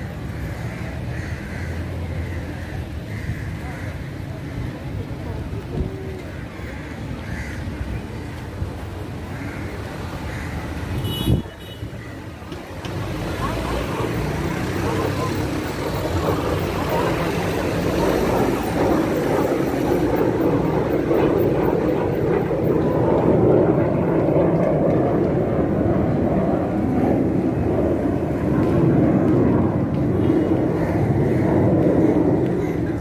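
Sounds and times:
aircraft flying over: 12.6s - 33.0s.

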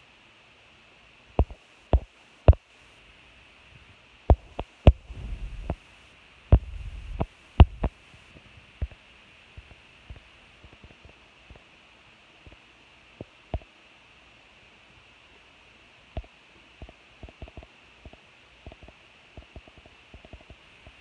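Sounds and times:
low rumbling: 4.9s - 5.9s, 6.5s - 7.9s.

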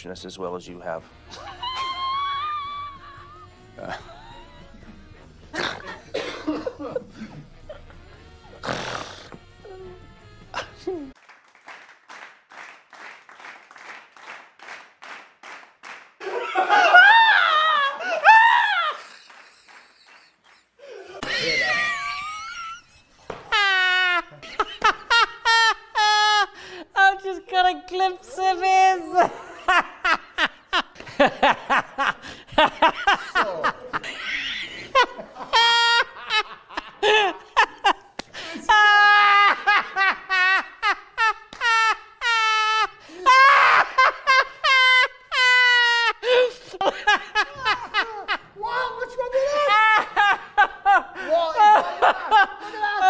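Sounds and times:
person laughing: 1.3s - 8.0s, 16.2s - 26.6s, 29.1s - 48.5s.

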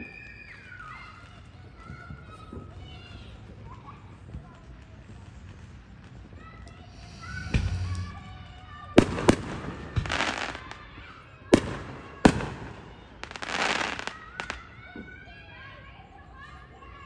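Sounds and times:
firework crackling: 2.7s - 14.8s
firework shells bursting: 6.7s - 10.8s.

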